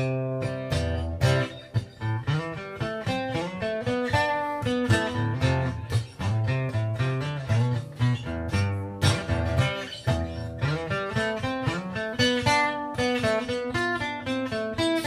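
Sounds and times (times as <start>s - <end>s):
picked and strummed guitar: 0.0s - 15.0s.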